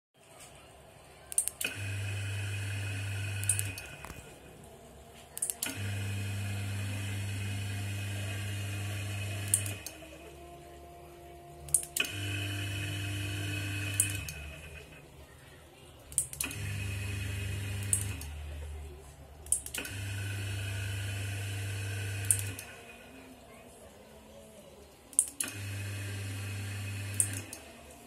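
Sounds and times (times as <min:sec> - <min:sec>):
motor switch click: 0:01.3 - 0:02.0, 0:03.3 - 0:04.2, 0:05.4 - 0:06.2, 0:09.3 - 0:10.1, 0:11.7 - 0:14.5, 0:16.1 - 0:17.0, 0:17.7 - 0:18.3, 0:19.4 - 0:22.7, 0:25.1 - 0:25.9, 0:27.1 - 0:27.6
gate opener motor humming: 0:01.3 - 0:15.2, 0:16.1 - 0:18.8, 0:19.5 - 0:23.6, 0:25.1 - 0:28.0.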